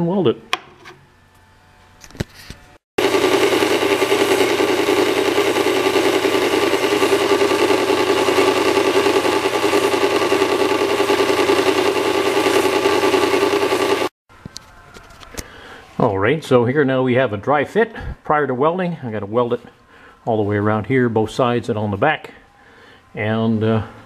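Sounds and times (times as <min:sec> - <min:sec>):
band saw cutting steel: 0:03.0 - 0:14.1.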